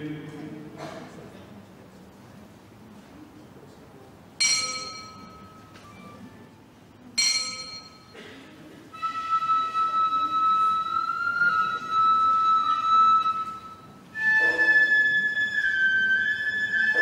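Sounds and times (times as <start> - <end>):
metal temple bell ringing: 4.4 - 5.8, 7.2 - 8.2
wind instrument high note: 9.0 - 17.0.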